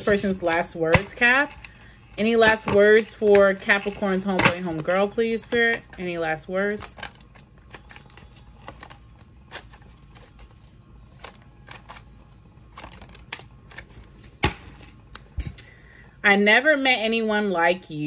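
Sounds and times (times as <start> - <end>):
faint low room hum: 0.0 - 18.0.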